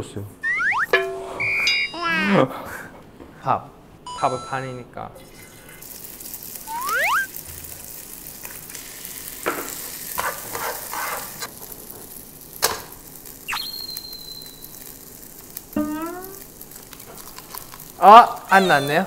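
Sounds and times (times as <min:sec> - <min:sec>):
food sizzling in a pan: 0:05.3 - 0:19.0
short high tone: 0:06.7 - 0:07.3, 0:15.8 - 0:16.4.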